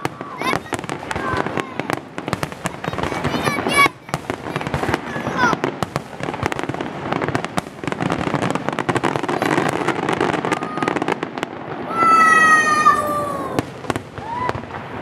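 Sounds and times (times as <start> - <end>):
firework bangs: 0.0 - 15.0
fireworks crackling pops: 0.0 - 15.0
firework whistle: 9.2 - 14.8.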